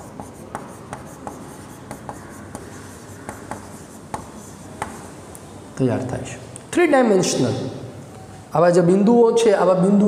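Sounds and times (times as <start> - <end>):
chalk writing on chalkboard: 0.0 - 5.3.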